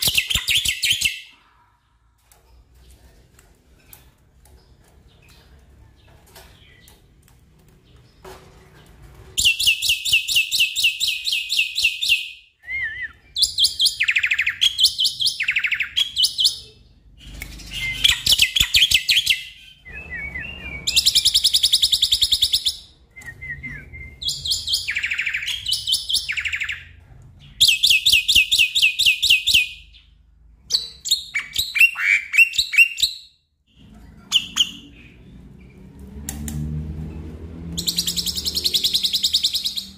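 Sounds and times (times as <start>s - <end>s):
bird chattering song: 13.1s - 35.5s, 37.8s - 39.9s.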